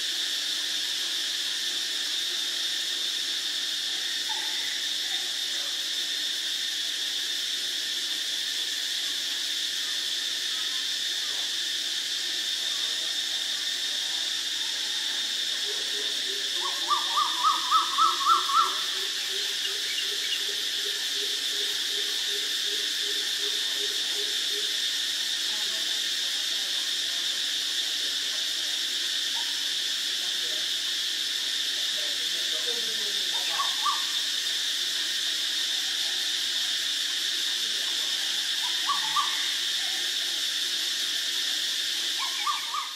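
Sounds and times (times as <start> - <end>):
insect drone: 0.0 - 42.9
owl low hoots: 16.6 - 19.0, 33.5 - 34.2, 38.6 - 39.6, 42.2 - 42.9.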